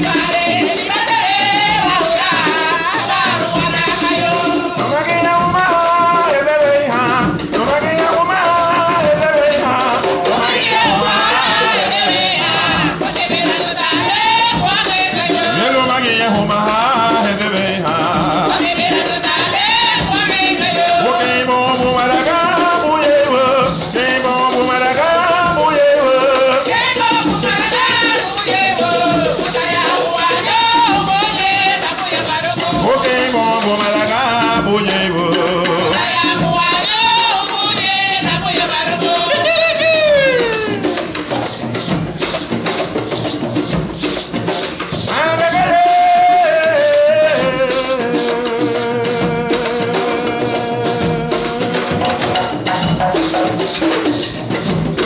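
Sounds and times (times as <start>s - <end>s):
shaken rattles: 0.0s - 34.6s
woman singing: 0.0s - 41.2s, 45.1s - 52.6s
hand drums: 0.0s - 55.0s.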